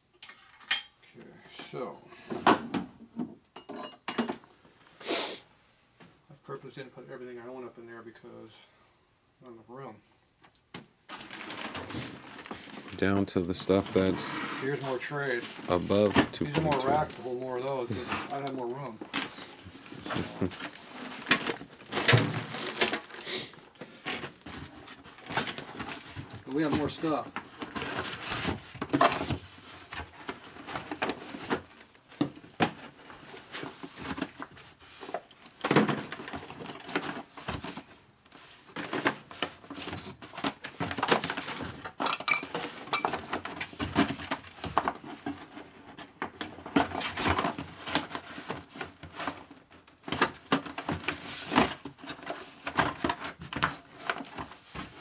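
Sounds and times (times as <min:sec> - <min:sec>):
packages knocking and clinking: 0:10.8 - 0:55.0
paper and cardboard rustling: 0:11.1 - 0:55.0.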